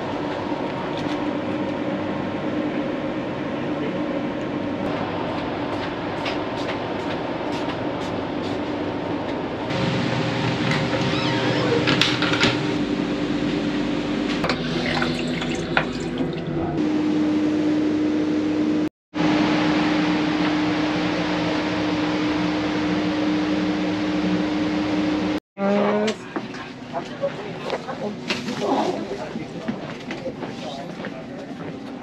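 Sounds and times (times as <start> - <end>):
train carriage rushing noise: 4.8 - 12.8.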